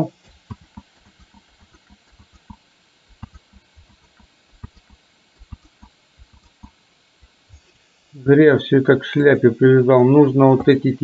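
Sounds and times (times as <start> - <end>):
mouse and keyboard clicking: 0.3 - 7.4.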